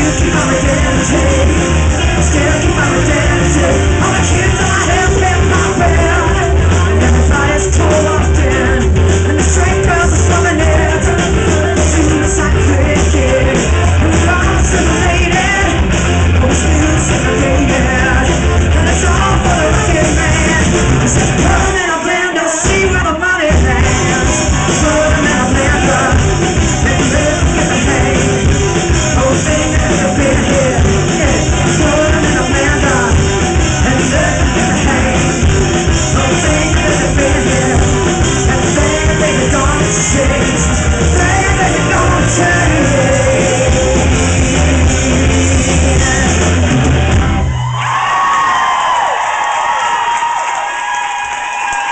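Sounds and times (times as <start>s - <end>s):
electric guitar: 0.0s - 51.9s
live rock band playing: 0.0s - 51.9s
crowd cheering: 46.7s - 51.9s.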